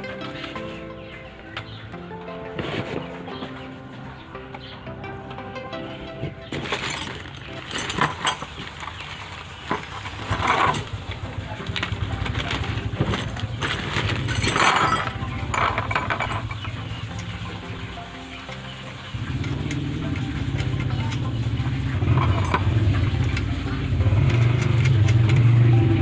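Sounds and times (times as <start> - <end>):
light clinks of metal parts: 6.8 - 9.0, 14.3 - 16.7.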